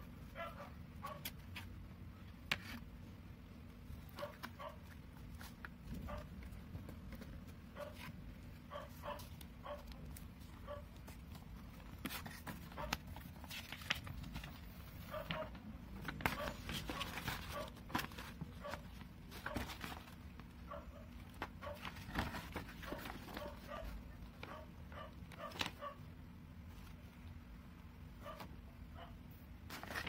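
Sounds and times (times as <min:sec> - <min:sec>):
cardboard and paper rustling: 0:01.1 - 0:03.1, 0:03.8 - 0:24.6, 0:25.2 - 0:25.9, 0:29.6 - 0:30.0.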